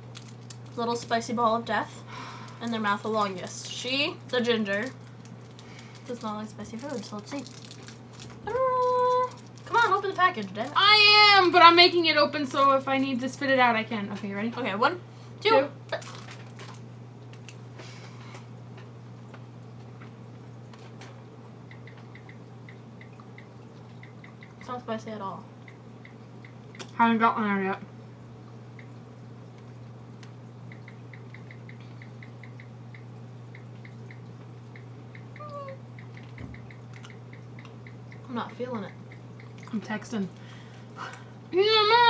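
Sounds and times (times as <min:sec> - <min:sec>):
low electrical hum: 0:00.0 - 0:42.0
faint clicks and ticks: 0:21.6 - 0:24.9, 0:25.6 - 0:27.0, 0:28.7 - 0:40.5.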